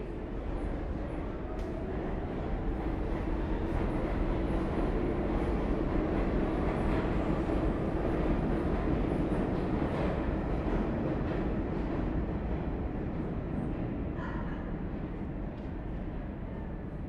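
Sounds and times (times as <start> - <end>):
subway train rumbling on tracks: 0.0 - 17.0.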